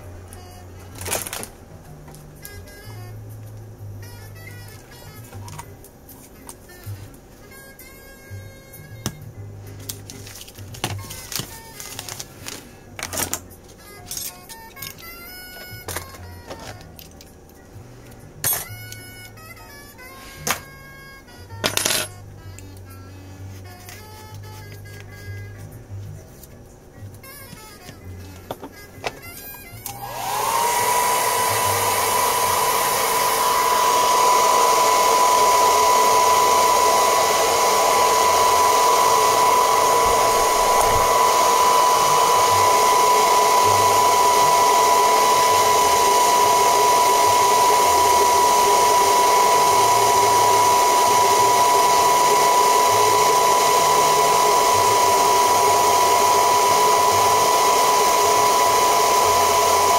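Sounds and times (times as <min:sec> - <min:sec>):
hair dryer running: 0:02.4 - 0:03.0, 0:04.1 - 0:05.7, 0:06.8 - 0:09.2, 0:29.6 - 0:59.9.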